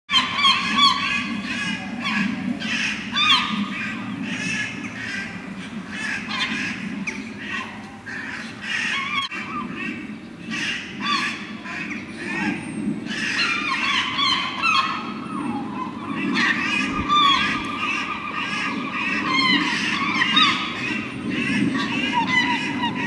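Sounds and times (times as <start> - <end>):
gull calling: 0.1 - 23.0
crows cawing: 15.8 - 23.0.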